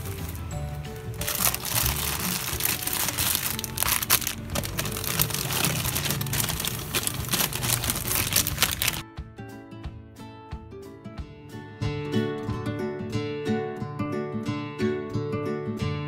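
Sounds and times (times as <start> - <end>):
plastic packaging crinkling: 0.0 - 9.0
towel rubbing plastic: 0.0 - 9.0
background music: 0.0 - 16.0.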